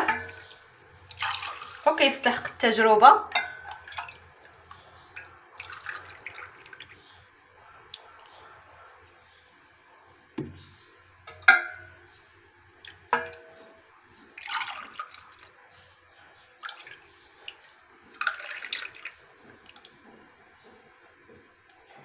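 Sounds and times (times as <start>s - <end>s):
metal ladle clinking on glass: 0.0s - 0.5s, 3.3s - 3.8s, 11.3s - 12.0s, 13.2s - 13.8s
milk pouring into glass: 1.0s - 1.8s, 3.5s - 7.2s, 14.4s - 15.6s, 16.6s - 20.0s.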